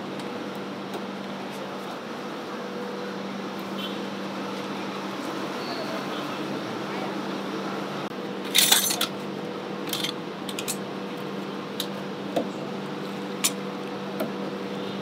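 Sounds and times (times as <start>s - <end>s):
metal utensils clinking and clattering: 8.5s - 9.1s.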